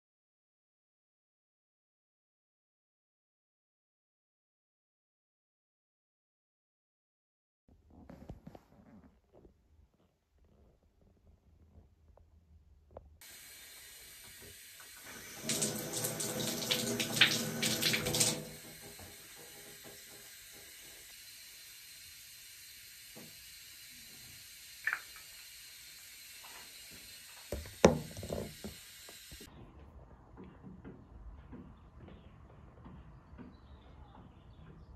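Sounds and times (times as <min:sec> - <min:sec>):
water tap running: 0:13.2 - 0:29.5.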